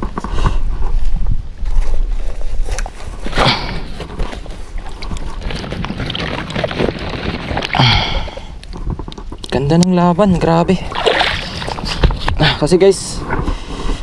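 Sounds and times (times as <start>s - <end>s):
wind buffeting microphone: 0.0s - 14.0s
water lapping and splashing: 3.2s - 9.6s, 10.4s - 12.4s.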